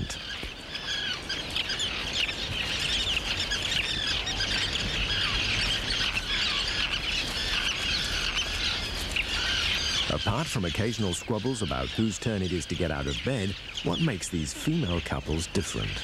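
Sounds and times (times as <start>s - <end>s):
terns calling: 0.0s - 16.0s.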